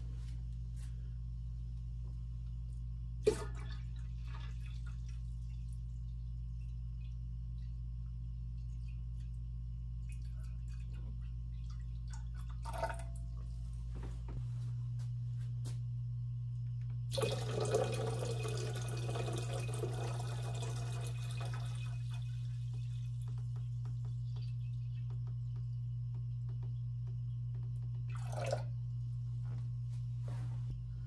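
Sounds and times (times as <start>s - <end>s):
low hum: 0.0s - 31.0s
water trickling: 17.1s - 27.2s.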